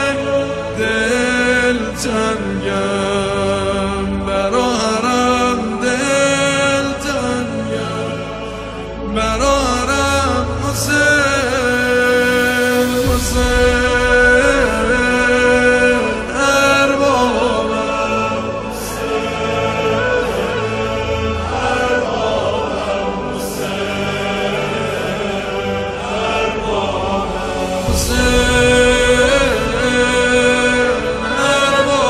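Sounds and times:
choir-like voices chanting: 0.0s - 32.0s
sustained low backing: 0.0s - 32.0s.

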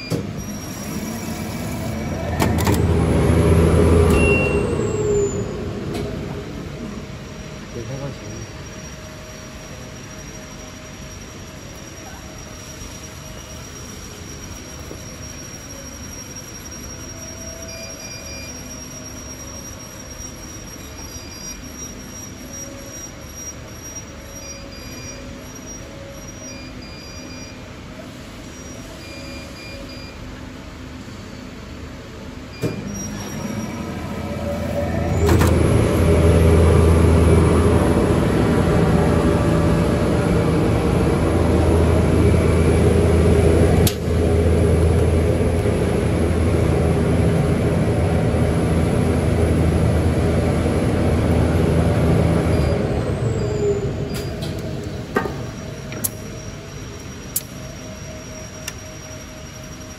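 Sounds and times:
short beeps: 4.0s - 5.5s
machine low hum: 32.5s - 59.9s
machine running with rushing drone: 33.3s - 59.9s
machine clunk: 35.1s - 35.7s.

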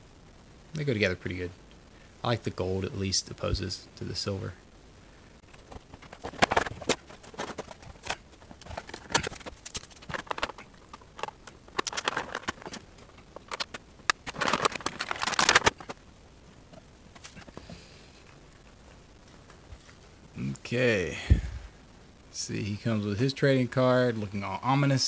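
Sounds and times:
plastic packaging crinkling: 5.4s - 16.0s.

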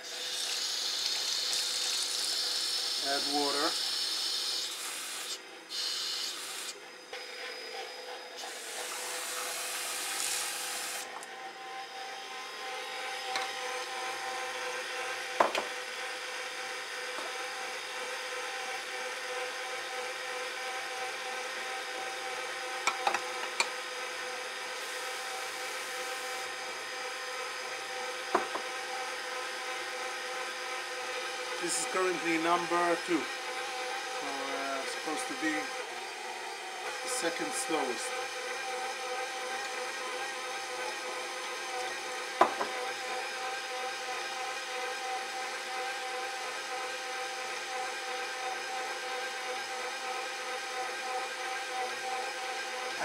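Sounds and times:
tap water running: 0.0s - 6.7s, 8.4s - 11.2s
stand mixer motor whirring: 0.0s - 53.0s.

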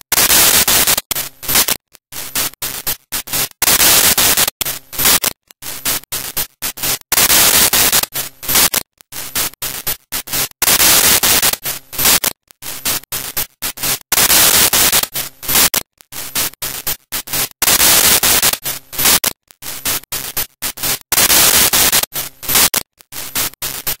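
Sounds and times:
loud hissing static: 0.1s - 1.7s, 2.3s - 24.0s.

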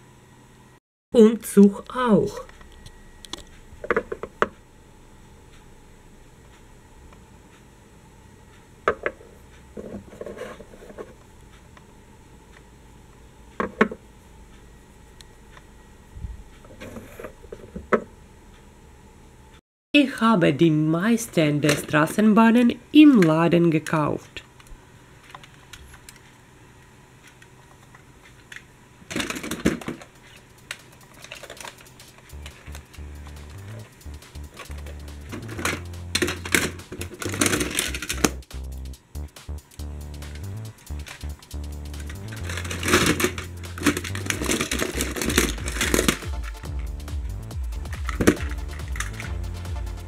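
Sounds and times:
light scraping and rubbing: 9.8s - 11.2s
toy vehicles clattering in plastic box: 29.1s - 30.1s, 31.1s - 32.6s, 35.4s - 38.2s, 42.3s - 46.5s.

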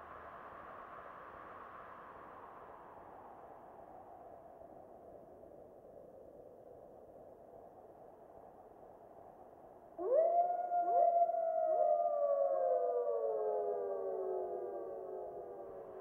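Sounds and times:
wolf howling: 10.0s - 16.0s.

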